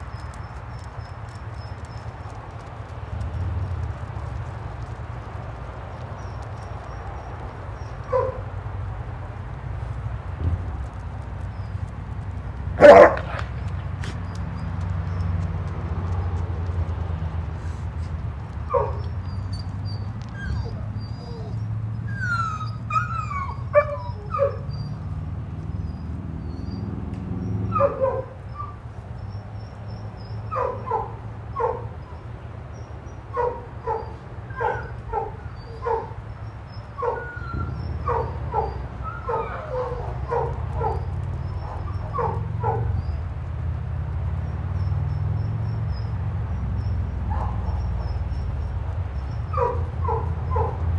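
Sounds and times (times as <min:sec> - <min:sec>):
dogs barking in sharp yips: 0:06.2 - 0:08.5, 0:12.8 - 0:15.4, 0:18.6 - 0:25.0, 0:27.7 - 0:28.8, 0:30.3 - 0:32.2, 0:33.3 - 0:43.2, 0:46.8 - 0:48.4, 0:49.2 - 0:50.9
dog whining: 0:18.7 - 0:25.0.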